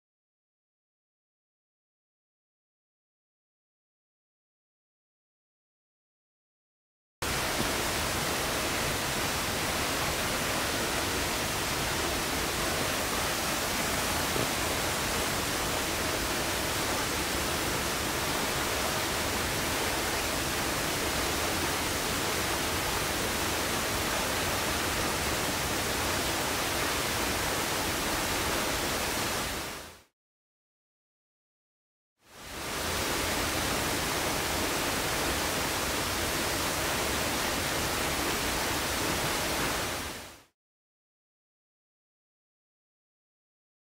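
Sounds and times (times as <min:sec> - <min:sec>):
waterfall rushing: 0:07.2 - 0:29.8, 0:32.4 - 0:40.2.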